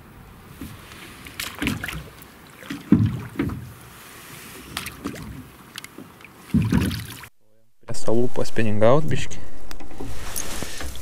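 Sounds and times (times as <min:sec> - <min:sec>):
oars knocking and swishing water: 0:00.4 - 0:07.3.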